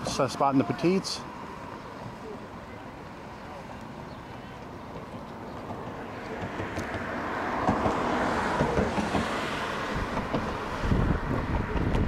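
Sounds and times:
road traffic passing: 0:00.0 - 0:12.0
wind gusting on microphone: 0:05.7 - 0:12.0.

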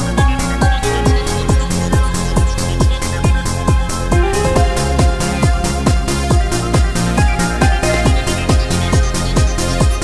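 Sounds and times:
ticking percussion: 0:00.0 - 0:10.0
kick drum: 0:00.2 - 0:10.0
held synth notes: 0:03.8 - 0:09.1.

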